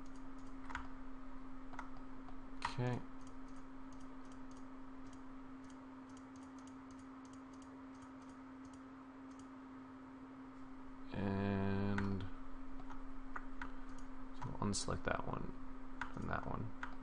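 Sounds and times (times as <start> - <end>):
computer mouse clicks: 0.0 - 0.9, 1.7 - 2.0, 2.6 - 9.5, 16.0 - 16.2, 16.8 - 17.0
steady low hum: 0.0 - 17.0.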